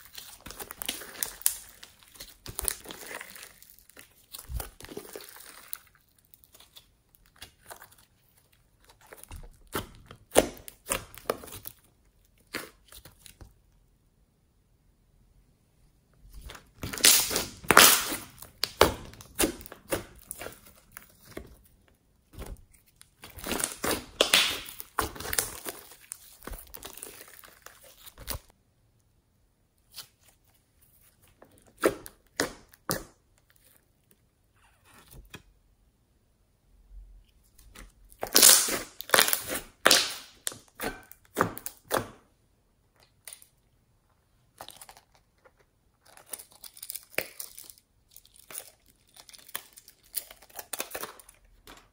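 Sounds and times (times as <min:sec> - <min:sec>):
slime crackling and squelching: 0:00.0 - 0:13.6, 0:16.3 - 0:28.6, 0:37.5 - 0:42.2, 0:44.4 - 0:51.9.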